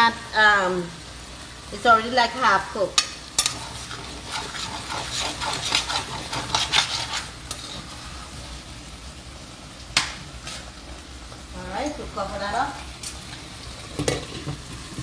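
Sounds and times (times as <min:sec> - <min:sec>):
low sizzle: 0:00.0 - 0:15.0
spatula scraping a frying pan: 0:03.0 - 0:08.6.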